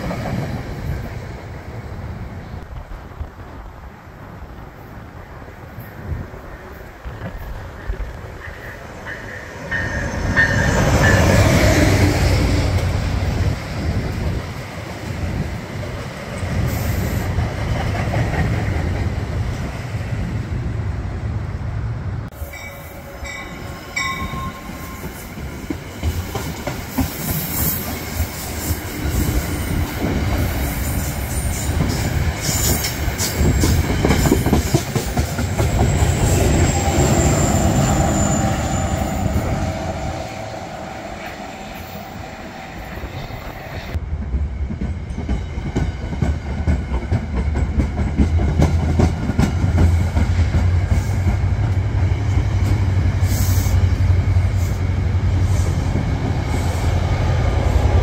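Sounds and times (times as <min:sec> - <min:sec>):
train wheels rumbling and clicking: 0:00.0 - 0:03.8, 0:05.8 - 0:20.3, 0:23.4 - 0:40.4, 0:42.9 - 0:58.0
high wheel squeal: 0:35.8 - 0:44.0.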